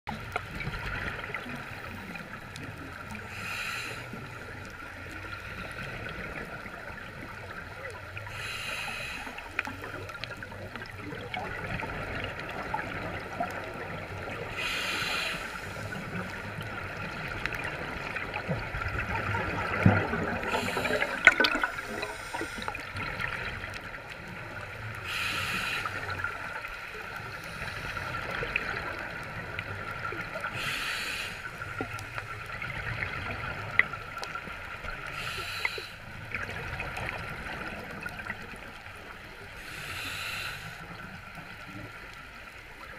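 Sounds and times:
regulator hiss: 8.3 - 9.4, 14.6 - 16.1, 20.4 - 22.8, 25.0 - 26.2, 30.6 - 31.8, 35.1 - 36.0, 39.6 - 41.0
diver exhaling bubbles: 18.0 - 23.7.

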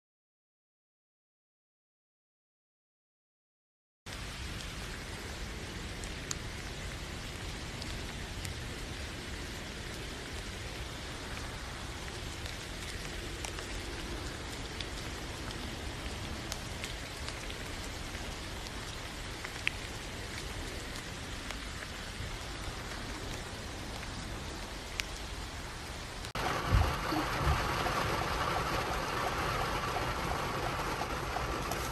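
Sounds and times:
steady rain falling: 4.1 - 31.9
raindrop striking nearby: 24.8 - 31.9.

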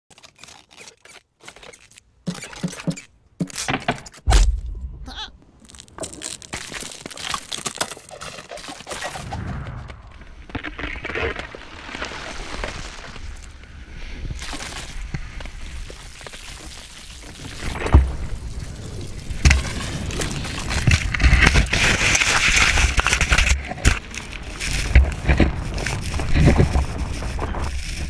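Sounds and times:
ice cracking and splintering: 0.1 - 2.0, 5.6 - 9.4, 10.1 - 13.6, 14.2 - 28.0
cartoon squeaks and grunts: 5.0 - 5.4
rushing snowboard and wind: 9.0 - 28.0.

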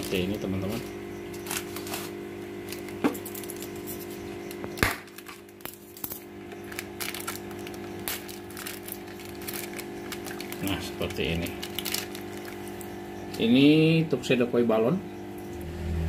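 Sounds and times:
steady low hum: 0.0 - 16.0
wet plastic bag rustling: 1.4 - 13.2.

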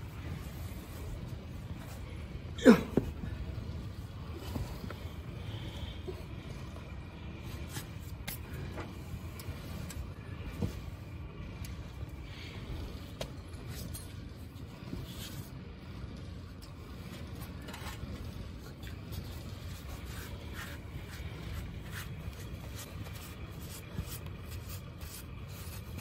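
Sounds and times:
steady low rumble: 0.0 - 26.0
sand being scraped and packed: 19.0 - 26.0.

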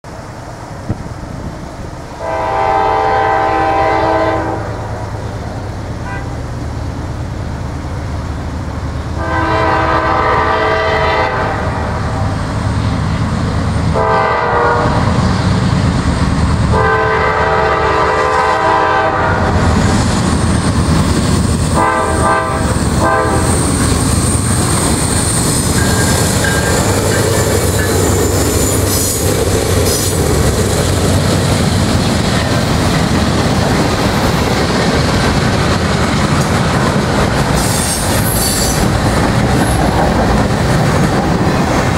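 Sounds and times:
freight cars rumbling: 0.0 - 41.9
train air horn blasts: 2.2 - 4.9, 6.0 - 6.4, 9.2 - 12.3, 13.9 - 15.2, 16.7 - 19.6, 21.8 - 23.6
high wheel squeal: 23.4 - 30.3, 37.6 - 39.9
wheels clicking over rail joints: 23.8 - 41.9.

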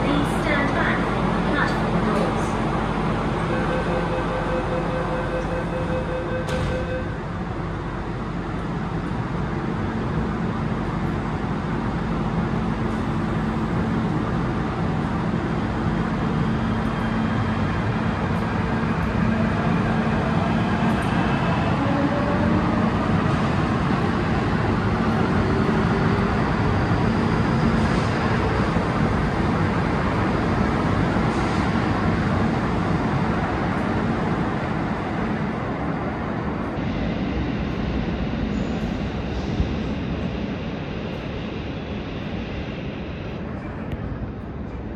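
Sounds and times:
train rail rumble: 0.0 - 44.9
train whine rising: 9.3 - 44.9.

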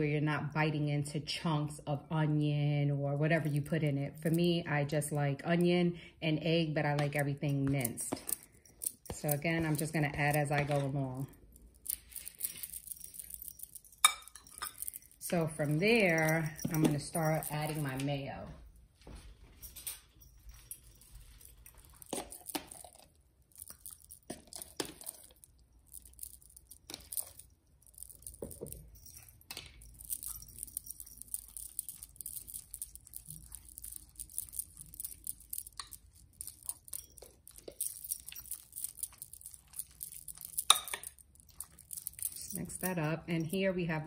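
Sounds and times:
spoon clinking against glass: 12.5 - 15.2, 40.4 - 42.6.

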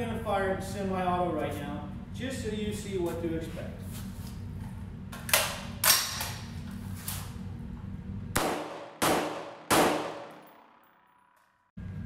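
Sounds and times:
rifle shots echoing: 8.4 - 10.9.

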